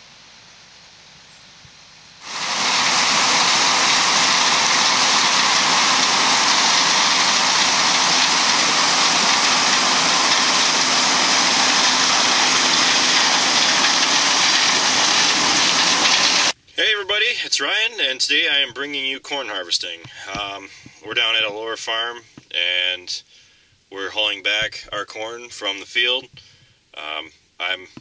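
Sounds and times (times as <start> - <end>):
faint steady hum: 0.0 - 13.3, 16.4 - 28.0
combine harvester running: 2.2 - 16.6.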